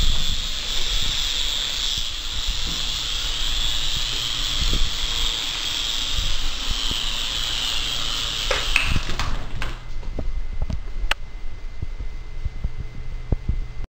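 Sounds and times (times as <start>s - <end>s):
toy helicopter rotors whirring: 0.0s - 9.7s.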